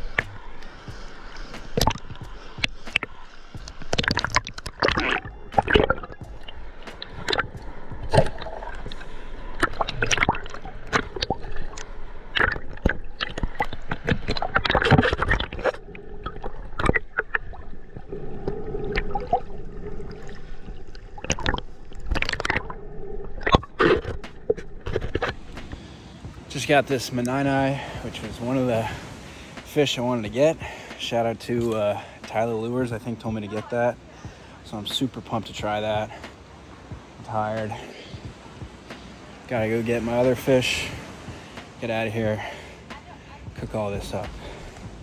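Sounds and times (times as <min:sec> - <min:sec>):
water sloshing and gurgling: 0:00.0 - 0:45.0
splashes and knocks: 0:01.6 - 0:26.4.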